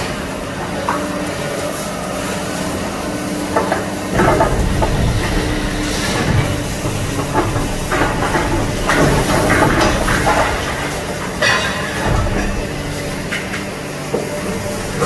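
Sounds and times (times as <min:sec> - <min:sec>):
excavator engine drone: 0:00.0 - 0:15.0
concrete crunching and cracking: 0:04.1 - 0:15.0.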